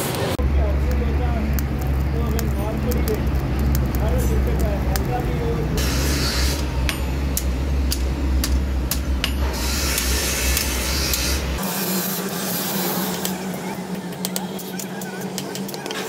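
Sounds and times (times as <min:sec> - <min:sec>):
low hum and hiss: 0:00.4 - 0:11.6
hammer striking hot metal: 0:00.7 - 0:16.0.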